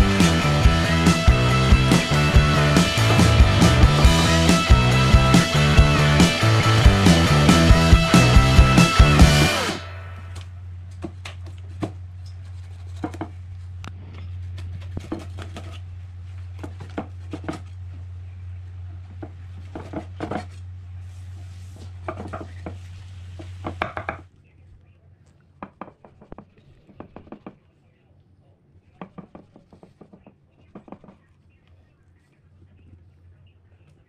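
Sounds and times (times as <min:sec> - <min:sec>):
steady low hum: 0:00.0 - 0:25.6.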